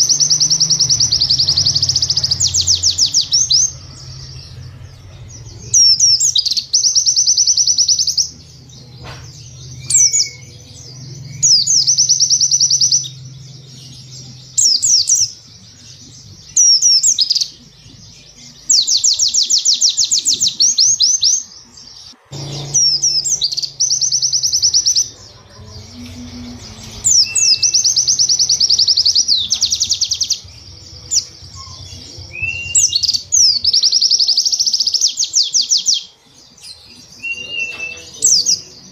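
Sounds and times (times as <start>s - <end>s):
bird singing high fast notes: 22.3s - 25.1s.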